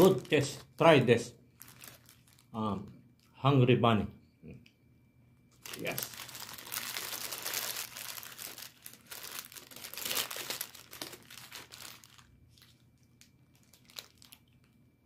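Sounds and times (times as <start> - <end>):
paper wrapping crinkling: 0.0 - 2.5, 5.6 - 14.8.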